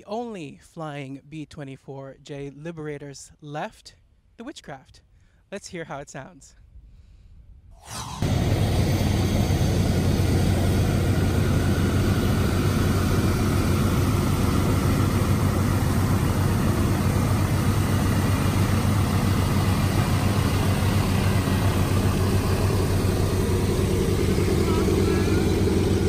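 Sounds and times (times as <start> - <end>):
propeller aircraft engines droning: 8.0 - 26.0.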